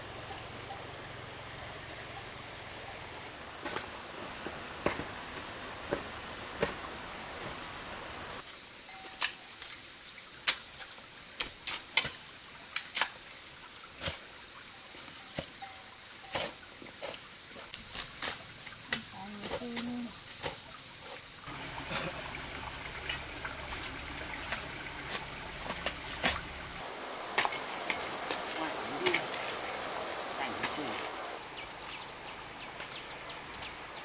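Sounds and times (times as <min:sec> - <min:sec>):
insects droning: 0:00.0 - 0:34.0
hoe and shovel chopping dirt: 0:24.5 - 0:26.6.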